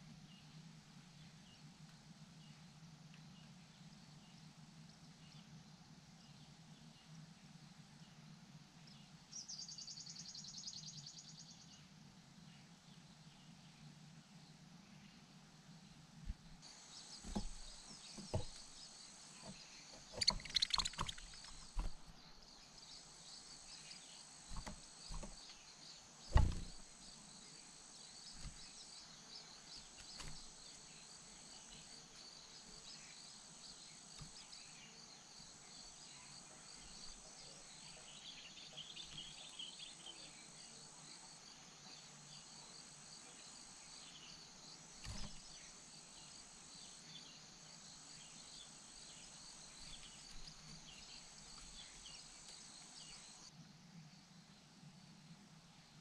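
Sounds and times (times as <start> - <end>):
faint high chirps: 16.7 - 27.6
high-pitched insect chorus: 16.7 - 53.5
dull thumps: 17.2 - 22.3, 24.5 - 25.5, 26.3 - 27.0.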